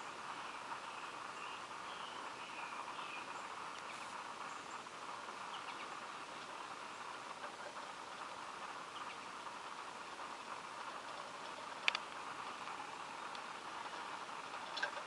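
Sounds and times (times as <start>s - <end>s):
outdoor background hiss: 0.0s - 15.0s
tiny clicks: 11.8s - 12.1s.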